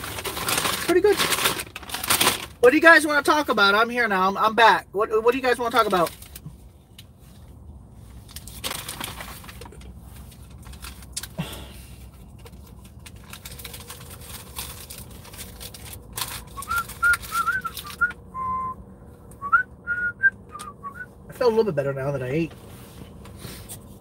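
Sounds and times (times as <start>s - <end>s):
man whistling a tune: 16.6s - 18.8s, 19.4s - 21.1s.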